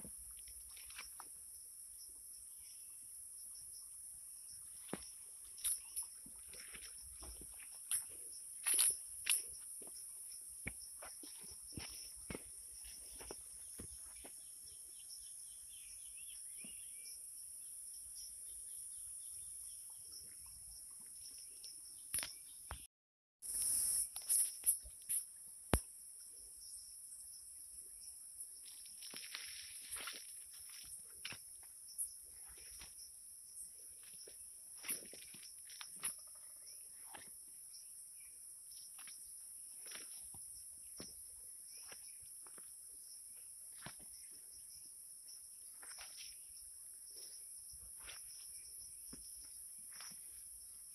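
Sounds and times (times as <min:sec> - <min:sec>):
insects chorus: 0:00.0 - 0:22.6, 0:23.4 - 0:50.9
crickets chirping: 0:00.0 - 0:50.9
soft footsteps: 0:04.8 - 0:10.0, 0:10.6 - 0:14.4.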